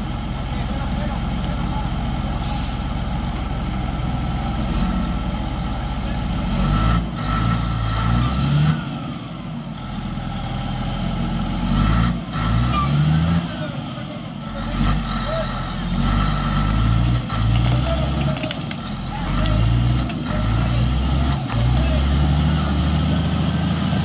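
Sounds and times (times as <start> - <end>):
bulldozer diesel engine revving: 0.0 - 24.0
air hiss: 2.4 - 2.9.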